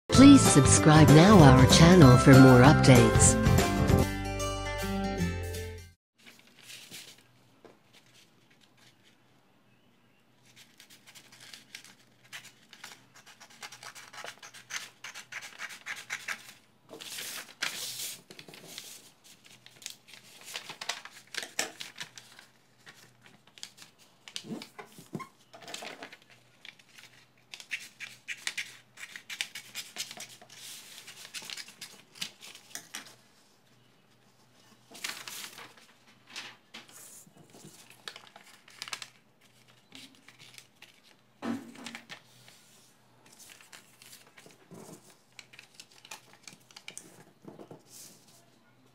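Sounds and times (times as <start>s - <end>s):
paper creased and folded: 6.2s - 9.2s, 10.4s - 33.2s, 34.4s - 41.2s, 41.8s - 47.2s.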